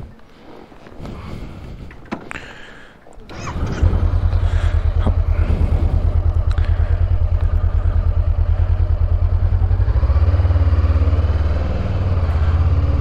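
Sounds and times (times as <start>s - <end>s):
vehicle engine idling: 2.5s - 13.0s
heavier engine note: 3.3s - 13.0s.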